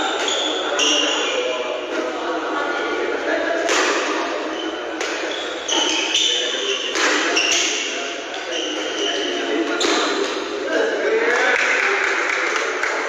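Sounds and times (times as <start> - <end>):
sneakers squeaking on floor: 0.0 - 1.6, 4.0 - 10.5
rackets hitting shuttlecock: 3.6 - 10.5.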